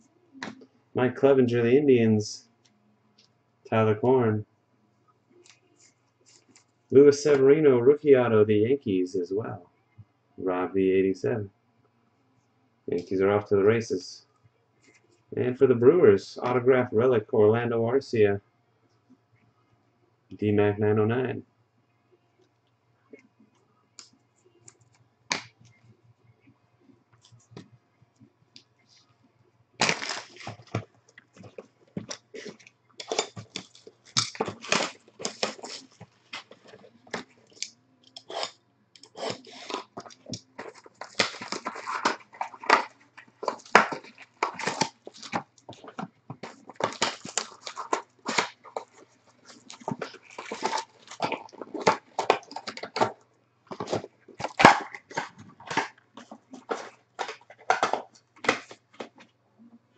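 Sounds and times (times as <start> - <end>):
foil packs crinkling: 29.8 - 37.6, 38.3 - 53.1.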